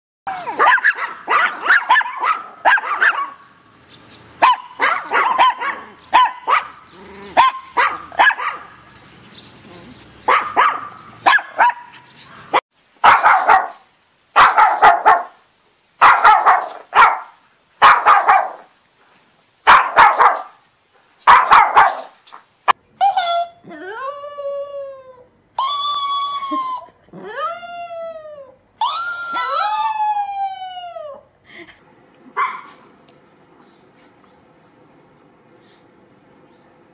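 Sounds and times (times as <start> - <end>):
small dogs barking: 0.3 - 3.6, 4.4 - 8.8, 9.7 - 15.4, 16.0 - 18.7, 19.6 - 20.6, 21.2 - 22.2, 32.3 - 32.9.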